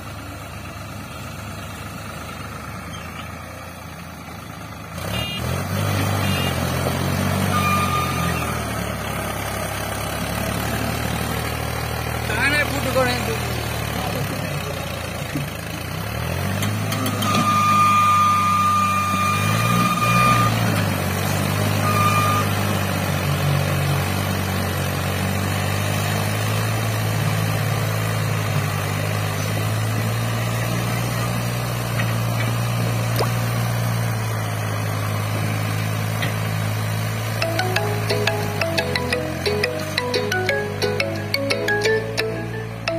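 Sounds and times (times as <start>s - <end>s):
tractor diesel engine labouring: 0.0s - 42.9s
high steady tone: 37.4s - 42.9s.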